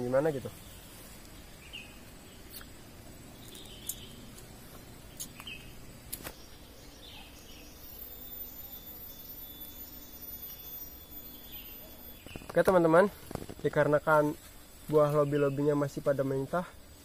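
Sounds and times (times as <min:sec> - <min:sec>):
faint bird chirps: 0:00.0 - 0:13.4
steady outdoor hiss: 0:00.0 - 0:17.0
thin high steady tone: 0:03.2 - 0:13.2.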